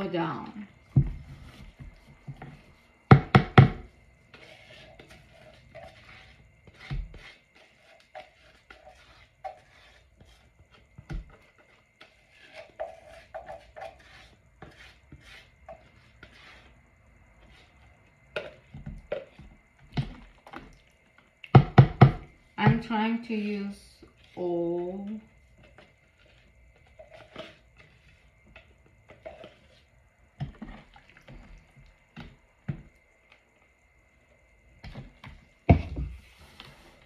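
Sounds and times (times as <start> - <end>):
spatula scraping plastic jug: 3.6 - 16.8, 17.4 - 20.8, 22.6 - 32.8.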